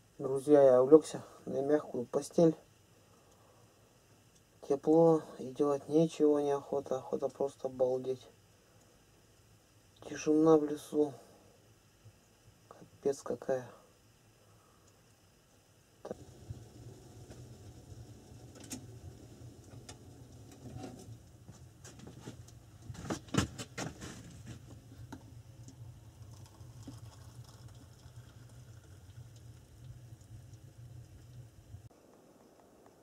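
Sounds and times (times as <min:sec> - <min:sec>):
steady low hum: 0:00.0 - 0:33.0
tea pouring into a mug: 0:24.7 - 0:31.5.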